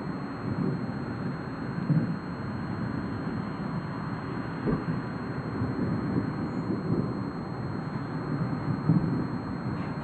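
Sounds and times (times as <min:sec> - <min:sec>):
storm wind buffeting microphone: 0:04.6 - 0:07.3.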